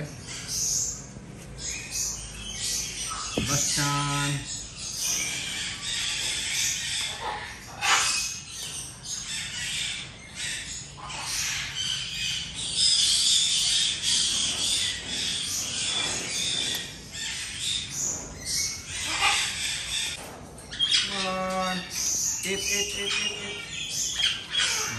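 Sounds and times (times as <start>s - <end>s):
macaws squawking: 1.6s - 8.5s, 18.5s - 20.2s, 20.8s - 24.9s.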